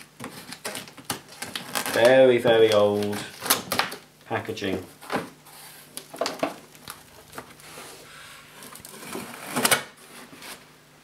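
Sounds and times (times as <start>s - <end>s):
cardboard rustling and scraping: 4.7s - 10.7s.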